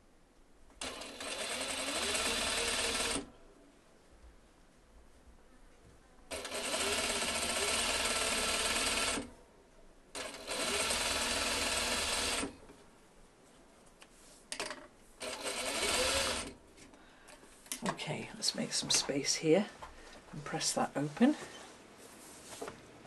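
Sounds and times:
sewing machine stitching: 0:00.8 - 0:03.3, 0:06.3 - 0:09.3, 0:10.2 - 0:12.6, 0:15.2 - 0:16.6.

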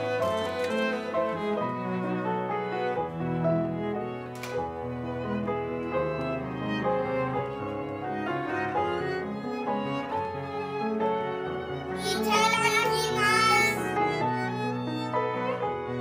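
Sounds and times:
bowed strings: 0:00.0 - 0:16.0
piano: 0:00.0 - 0:16.0.

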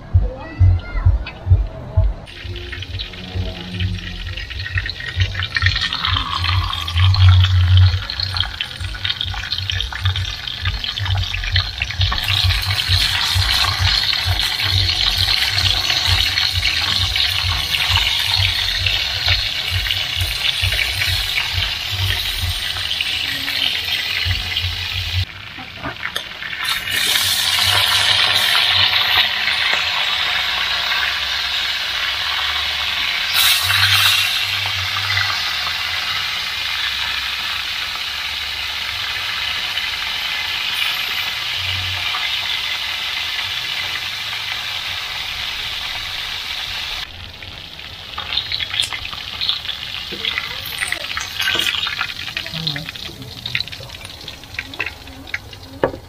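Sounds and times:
low rumble: 0:00.0 - 0:25.3
fish frying in hot oil: 0:02.3 - 0:56.0.

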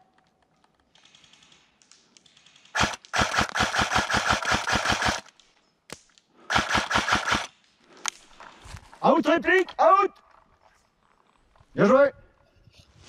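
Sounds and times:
airsoft gun firing: 0:02.7 - 0:05.3, 0:06.5 - 0:07.5.

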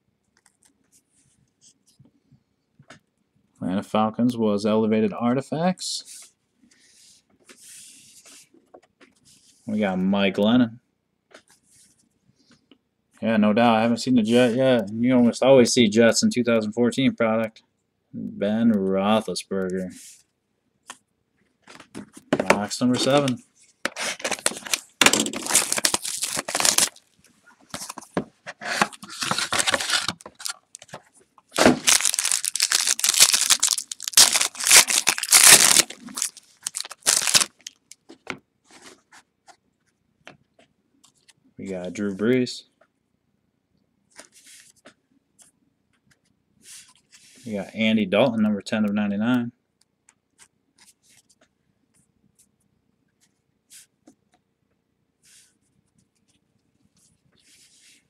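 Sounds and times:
trading cards rustling and sliding: 0:21.9 - 0:27.1, 0:27.7 - 0:37.9
plastic wrapper crinkling: 0:23.0 - 0:27.2, 0:28.7 - 0:38.2.

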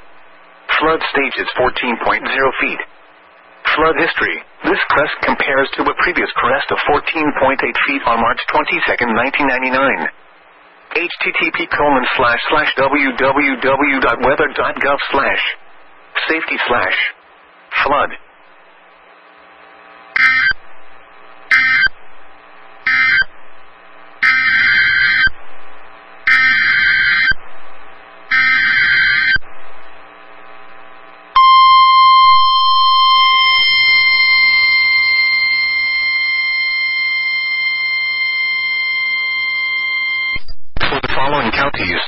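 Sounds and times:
data bursts: 0:20.2 - 0:20.6, 0:21.4 - 0:22.0, 0:22.8 - 0:23.4, 0:24.2 - 0:25.4, 0:26.2 - 0:27.4, 0:28.3 - 0:29.4, 0:31.4 - 0:41.7
steady warning alarm tone: 0:20.2 - 0:22.0, 0:22.8 - 0:29.5, 0:31.4 - 0:40.4.

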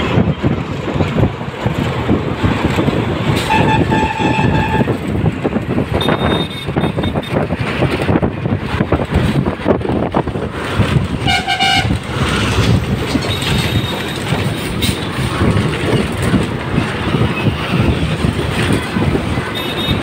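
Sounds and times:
road and wind noise: 0:00.0 - 0:20.0
vehicle horn honk: 0:03.5 - 0:04.9, 0:06.0 - 0:07.4, 0:11.3 - 0:11.9.

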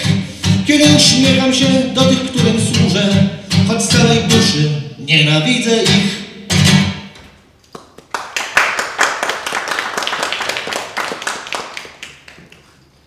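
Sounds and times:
small audience applauding: 0:07.7 - 0:13.0.

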